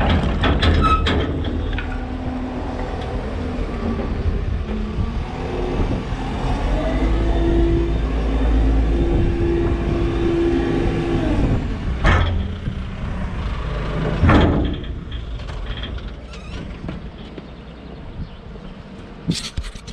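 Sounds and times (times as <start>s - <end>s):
heavy clunks: 0.0s - 5.0s, 12.0s - 13.2s, 13.9s - 17.6s
diesel engine running: 0.0s - 18.0s.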